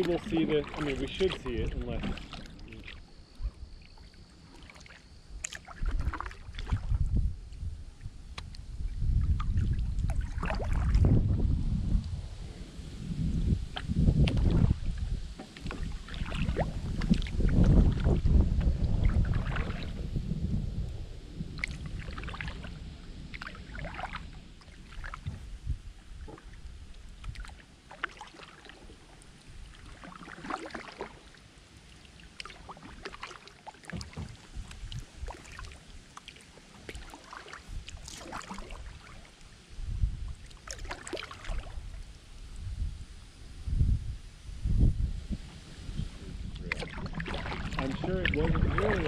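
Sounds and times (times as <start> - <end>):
wind buffeting microphone: 0.0 - 3.8, 5.8 - 27.4, 39.7 - 49.0
paddle splashing in water: 0.0 - 11.4, 13.5 - 20.1, 21.5 - 42.3, 45.2 - 49.0.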